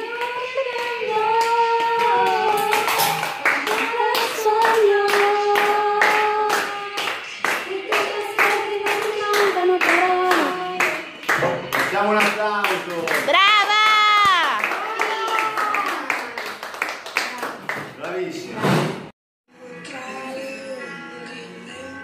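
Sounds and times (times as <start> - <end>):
high voice singing: 0.0 - 12.0
group clapping in time: 0.2 - 18.3.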